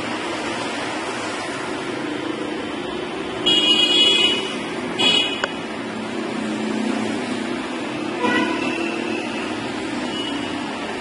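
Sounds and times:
street traffic: 0:00.0 - 0:11.0
high-pitched vehicle horn: 0:03.4 - 0:05.5, 0:08.2 - 0:09.3.

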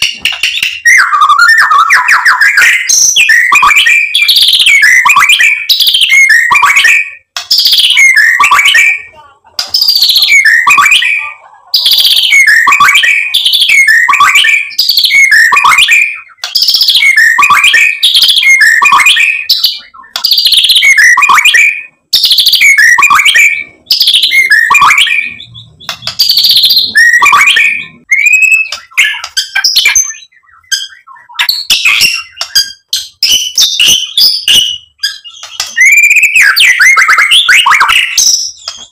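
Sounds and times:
bird singing whistled phrases: 0:00.0 - 0:38.9.

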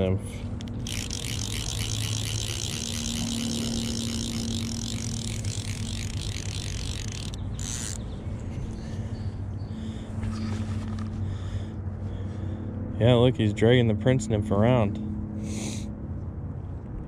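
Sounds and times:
fishing reel drag clicking: 0:00.6 - 0:08.0.

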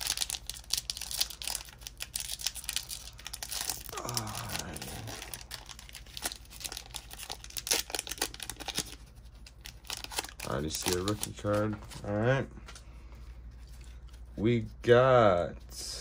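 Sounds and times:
foil wrapper tearing and crinkling: 0:00.0 - 0:11.8.

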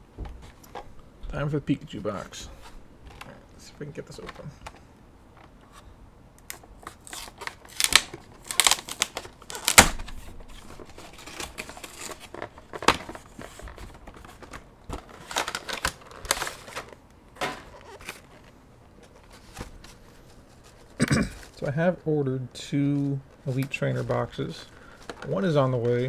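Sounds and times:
cardboard and plastic tearing: 0:06.5 - 0:20.0.

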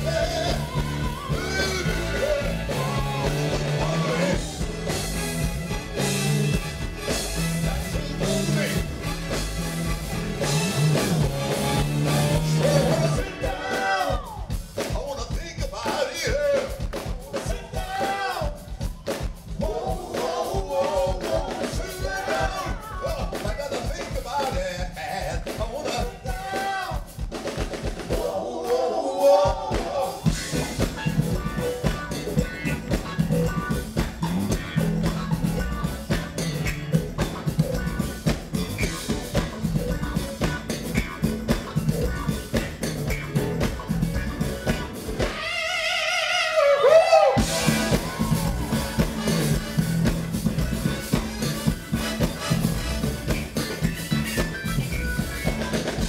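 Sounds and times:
electric bass: 0:00.0 - 0:13.7, 0:30.2 - 0:45.4, 0:47.4 - 0:56.0
drum kit: 0:00.0 - 0:56.0.

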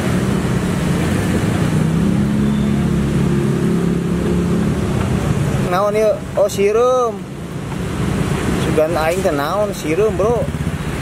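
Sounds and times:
loud rushing noise: 0:00.0 - 0:06.4.

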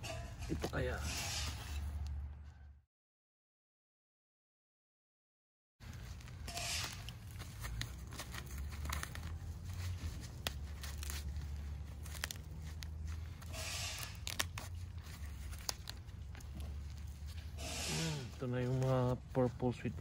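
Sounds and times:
hands rustling soil: 0:05.8 - 0:20.0
roots snapping: 0:06.1 - 0:19.0.

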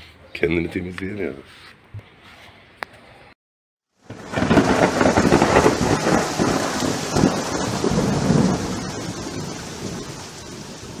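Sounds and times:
steady rain: 0:03.9 - 0:11.0
rolling thunder: 0:04.0 - 0:11.0.

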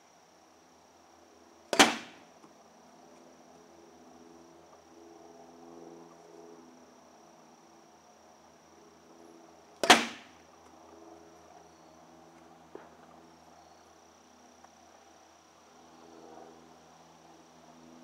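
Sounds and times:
bat cracking ball: 0:01.8 - 0:02.2, 0:09.8 - 0:10.3.

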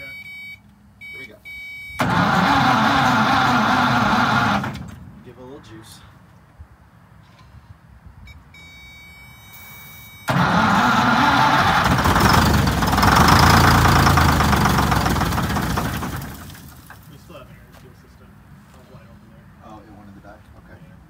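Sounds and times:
diesel engine running: 0:02.0 - 0:05.2, 0:10.3 - 0:17.1.

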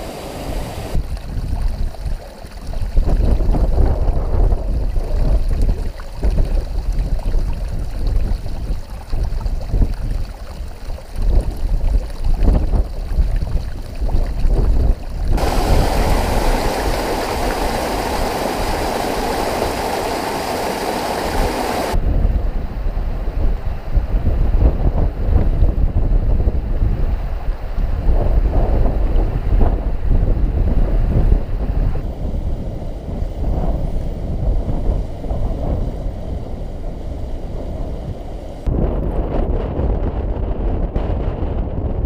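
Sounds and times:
mountain stream water rushing: 0:00.0 - 0:22.0
wind buffeting microphone: 0:00.0 - 0:42.0.

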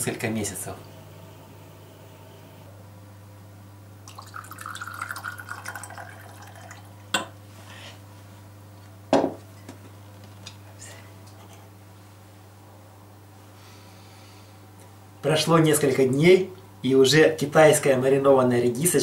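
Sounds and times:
liquid pouring into glass: 0:04.0 - 0:07.0
knock on counter: 0:09.1 - 0:09.4.

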